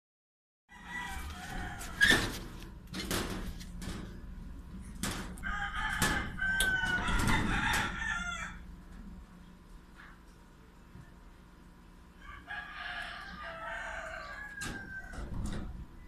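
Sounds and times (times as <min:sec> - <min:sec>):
rooster crowing: 0:00.7 - 0:02.3, 0:05.4 - 0:08.7, 0:12.2 - 0:15.7.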